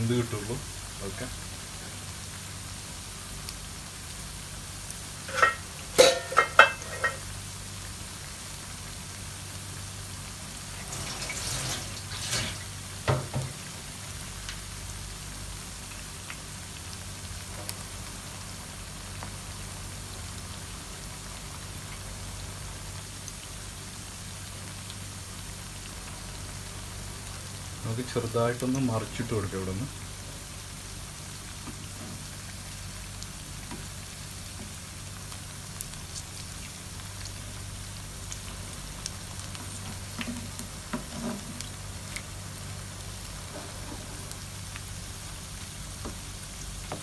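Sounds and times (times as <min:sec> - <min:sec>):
oil sizzling and bubbling: 0:00.0 - 0:47.0.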